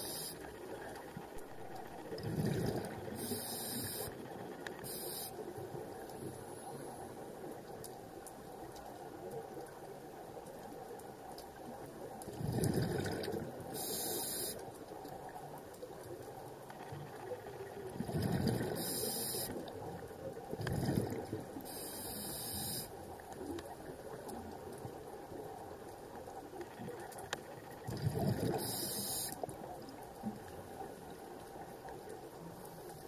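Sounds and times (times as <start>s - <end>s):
regulator hiss: 0.0s - 0.5s, 3.2s - 4.2s, 4.8s - 5.4s, 13.8s - 14.6s, 18.8s - 19.6s, 21.7s - 22.9s, 28.6s - 29.4s
watery background: 0.0s - 33.0s
underwater bubbles bursting: 1.6s - 3.4s, 12.2s - 13.7s, 17.9s - 19.0s, 20.4s - 21.6s, 27.9s - 28.8s.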